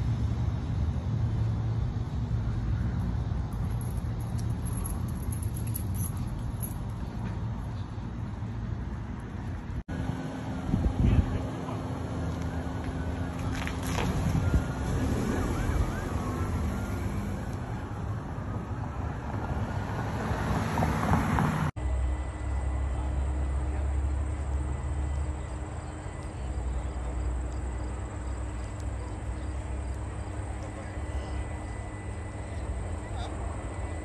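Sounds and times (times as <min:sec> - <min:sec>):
emergency sirens wailing: 0:09.9 - 0:34.0.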